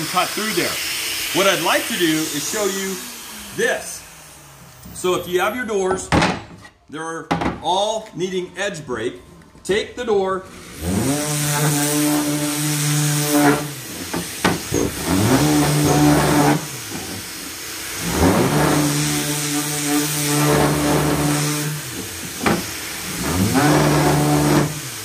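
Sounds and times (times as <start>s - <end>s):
electric sander motor whine: 0.7s - 5.4s.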